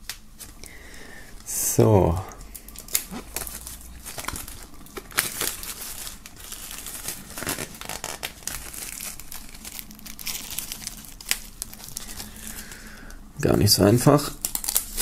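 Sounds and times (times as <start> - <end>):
plastic wrap crinkling: 1.3 - 15.0
knife slitting shrink-wrap: 2.8 - 12.2, 14.4 - 15.0.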